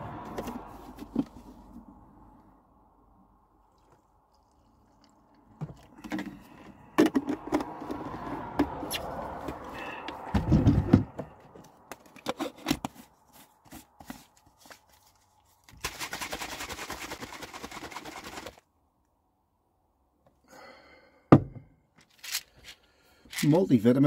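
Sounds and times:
plastic shaker bottle rattling: 0:15.7 - 0:18.6.

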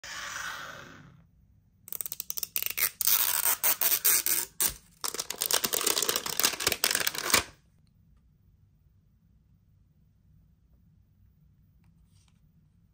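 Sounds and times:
plastic wrapper crinkling and tearing: 0:02.6 - 0:07.5.

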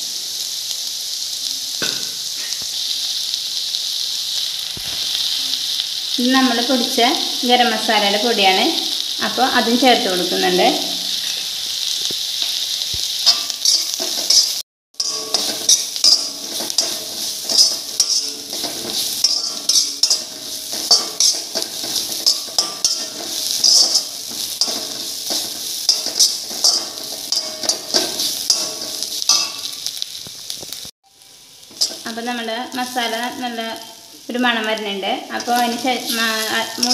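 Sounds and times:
food sizzling in a pan: 0:00.0 - 0:36.9
utensil scraping a pan: 0:13.3 - 0:29.7.

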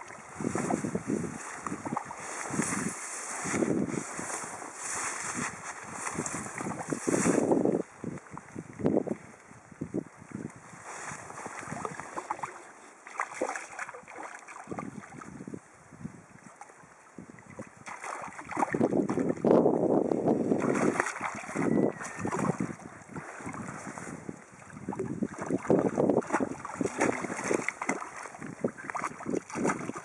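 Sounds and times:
wind buffeting microphone: 0:00.0 - 0:12.4, 0:17.2 - 0:30.0
fish splashing at water surface: 0:11.4 - 0:15.2, 0:17.8 - 0:19.3, 0:20.5 - 0:23.8, 0:25.3 - 0:30.0.

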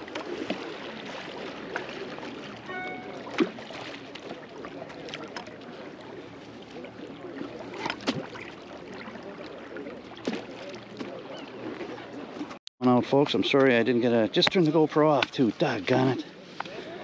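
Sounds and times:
river water rushing and lapping: 0:00.0 - 0:17.0.

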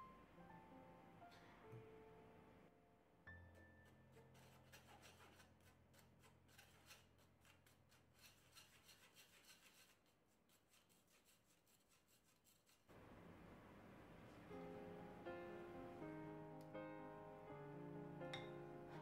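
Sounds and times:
spoon scraping wire-mesh sieve: 0:03.8 - 0:12.9.

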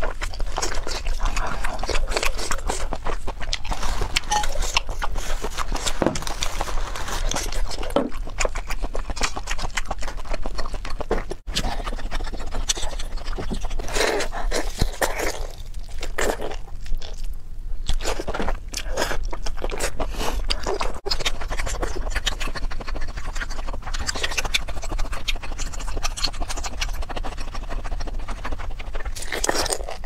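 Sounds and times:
wet sticky chewing: 0:00.0 - 0:30.0.

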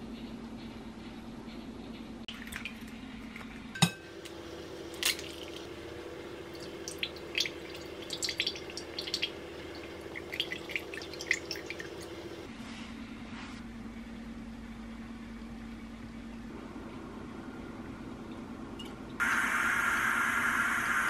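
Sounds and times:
steady low hum: 0:00.0 - 0:21.0
milk pouring and splashing: 0:02.3 - 0:03.5, 0:04.9 - 0:12.5.

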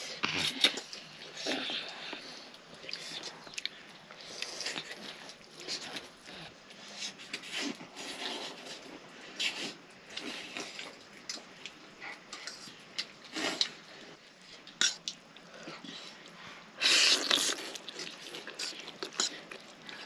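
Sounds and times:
chewing mouth noises: 0:14.6 - 0:20.0
slurping noodle soup: 0:16.8 - 0:20.0.

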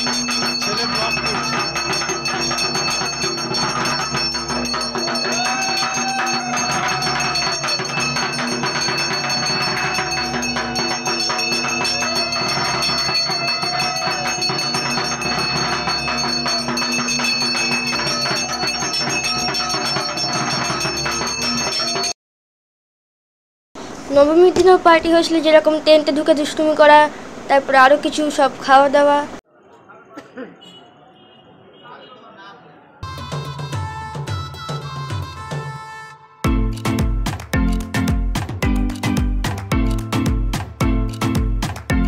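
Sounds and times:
hand bell ringing: 0:00.0 - 0:22.1.

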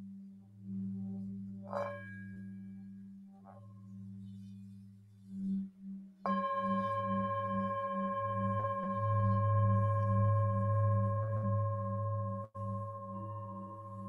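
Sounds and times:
low pulsing hum: 0:05.7 - 0:14.0
singing bowl struck and ringing: 0:06.3 - 0:14.0.

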